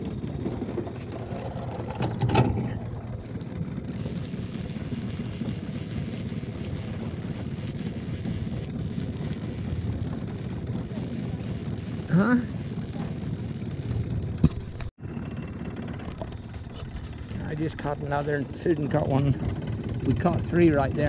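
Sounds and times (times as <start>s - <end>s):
wind on microphone: 0.0s - 14.6s
outboard motor droning: 0.0s - 21.0s.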